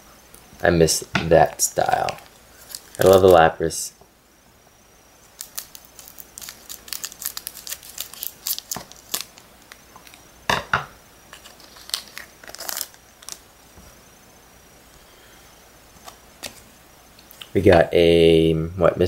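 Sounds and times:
foil wrapper crinkling: 1.7 - 3.5, 5.2 - 10.3, 11.3 - 13.5.

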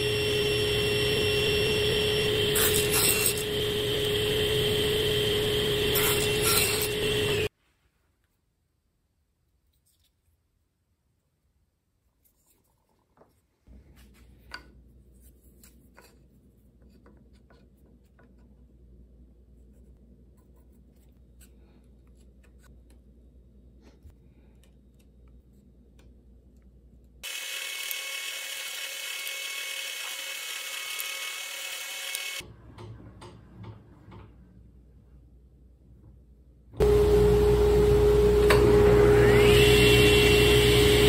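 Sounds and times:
drill whining boring wood: 0.0 - 7.5, 27.2 - 32.4, 36.8 - 41.0.

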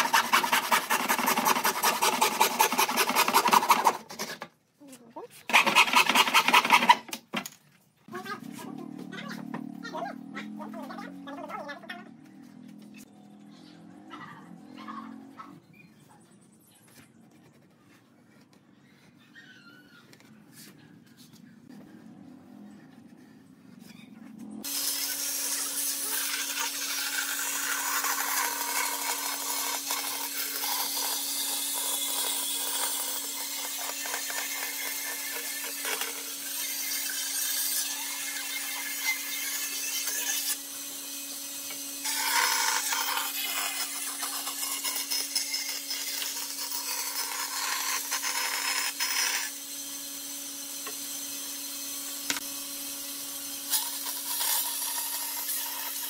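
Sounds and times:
rough rasping on wood: 0.0 - 4.5
power tool motor hum: 24.6 - 56.0.

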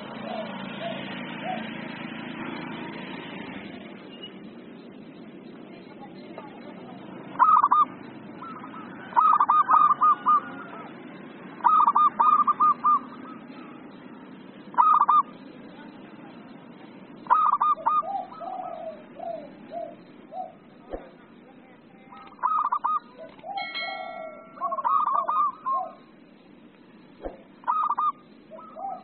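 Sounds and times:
dove cooing: 0.0 - 2.8, 6.8 - 15.4, 17.1 - 21.2, 22.1 - 26.1, 27.2 - 29.0
low background noise: 0.0 - 29.0.

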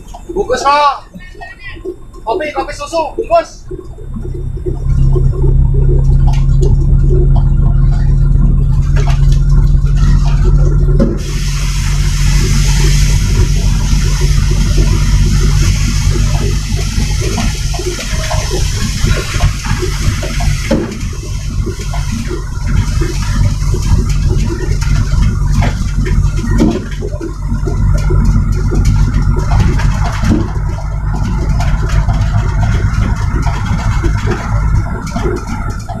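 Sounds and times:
truck diesel engine from inside cab: 0.0 - 36.0
rushing hiss: 11.2 - 23.7.

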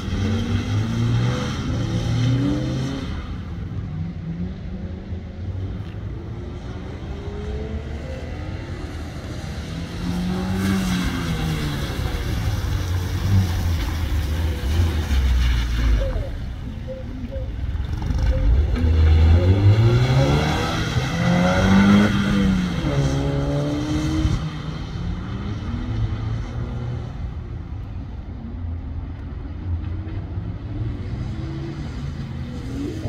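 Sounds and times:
car engine revving: 6.4 - 27.4.

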